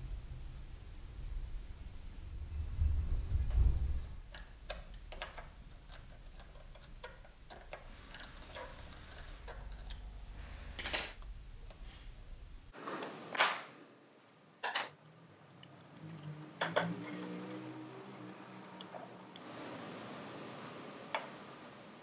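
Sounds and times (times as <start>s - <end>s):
hand tool clicking and scraping metal: 10.8s - 11.2s.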